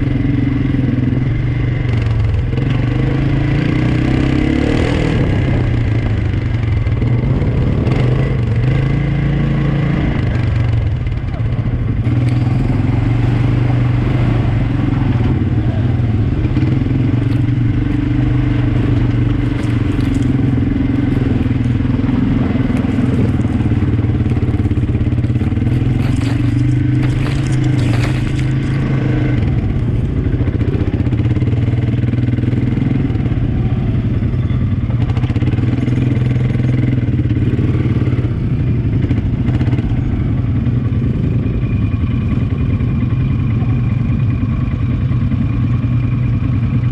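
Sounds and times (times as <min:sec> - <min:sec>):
quad bike engine running: 0:00.0 - 0:46.9
rattles and knocks: 0:25.5 - 0:28.9.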